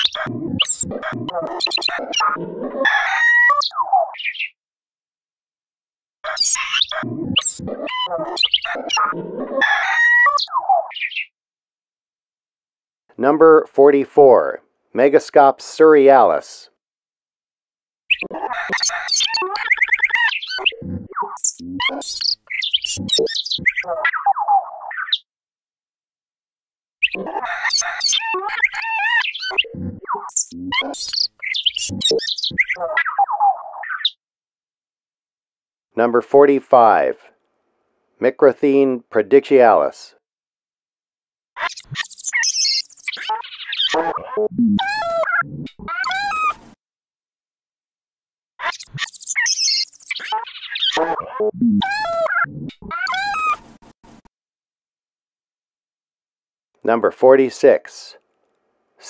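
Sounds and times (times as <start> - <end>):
glitched animal call: 0.0 - 4.6, 6.2 - 11.3, 18.1 - 25.2, 27.0 - 34.2, 41.6 - 46.7, 48.6 - 53.8.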